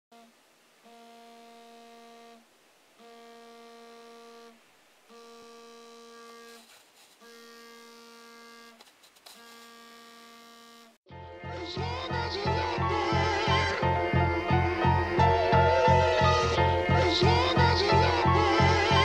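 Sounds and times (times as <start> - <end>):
phone alarm buzzing: 3.0 - 10.9.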